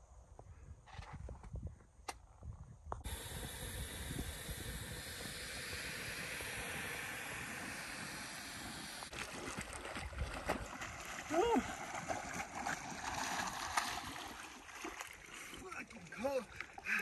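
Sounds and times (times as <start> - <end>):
stove burner hissing: 3.0 - 9.1
water splashing: 3.1 - 17.0.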